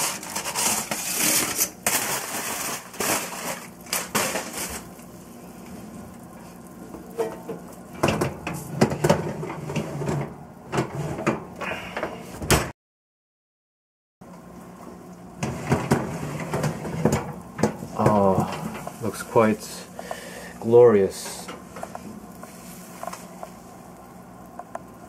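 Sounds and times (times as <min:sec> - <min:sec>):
aluminium foil crinkling: 0:00.0 - 0:05.6
low steady hum: 0:14.2 - 0:25.0.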